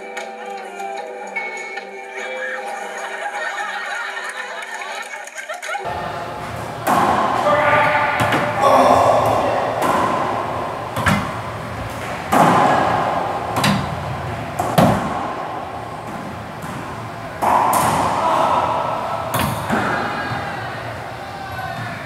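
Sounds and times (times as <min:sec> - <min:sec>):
racquetball hits echoing: 0:05.8 - 0:22.0.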